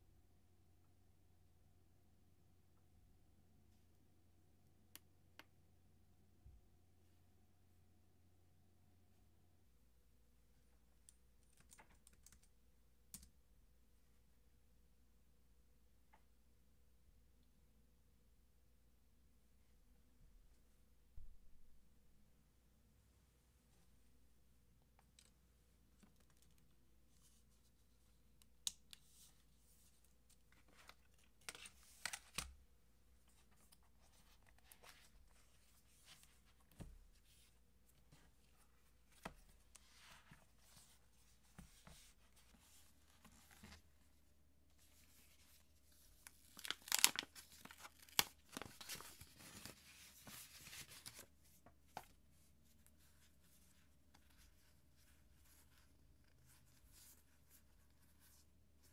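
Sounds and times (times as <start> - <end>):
packaging torn and crinkled: 46.2 - 49.6.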